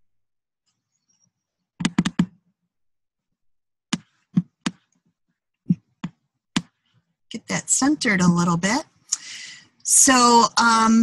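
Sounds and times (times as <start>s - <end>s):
laptop clicks: 1.8s - 2.3s.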